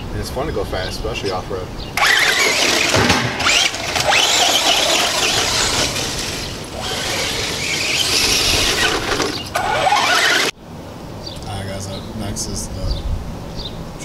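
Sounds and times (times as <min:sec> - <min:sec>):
rc truck motor whine: 0:02.0 - 0:10.6.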